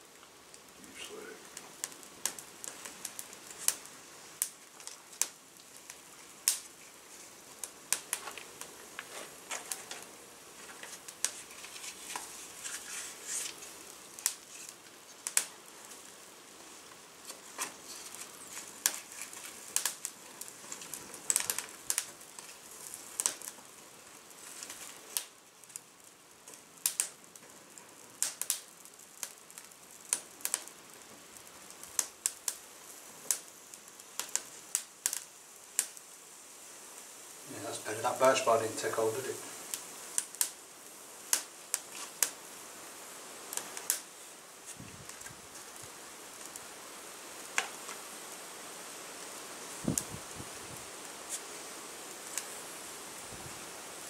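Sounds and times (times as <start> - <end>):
kindling fire crackling and popping: 0.0 - 54.0.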